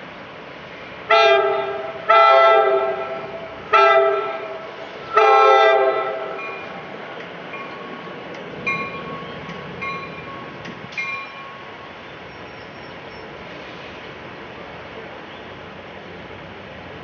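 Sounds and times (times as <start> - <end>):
train rumbling: 0.0 - 17.0
train air horn blasts: 1.1 - 6.5.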